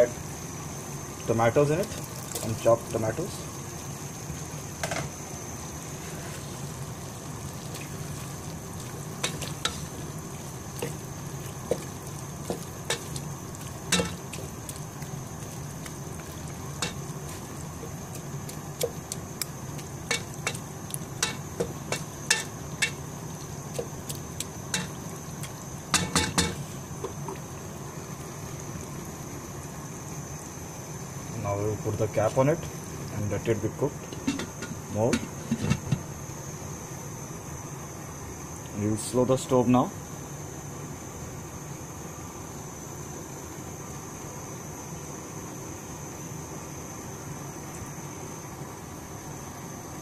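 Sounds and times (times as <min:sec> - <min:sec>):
curry sizzling in a pot: 0:00.0 - 0:38.6.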